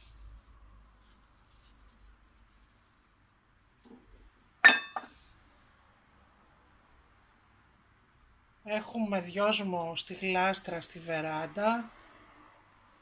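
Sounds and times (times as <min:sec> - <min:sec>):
small dish clinking: 0:04.6 - 0:05.2.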